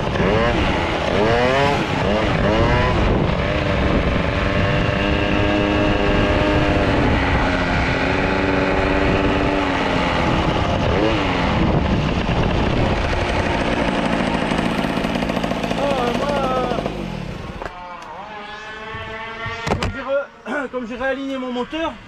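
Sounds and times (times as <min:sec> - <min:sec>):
wind noise: 0:00.0 - 0:15.4
moped engines running hard: 0:00.0 - 0:20.0.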